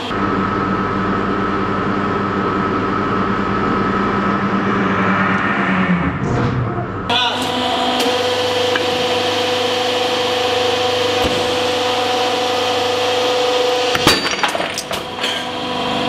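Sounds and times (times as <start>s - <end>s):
hydraulic press whining: 7.1s - 15.8s.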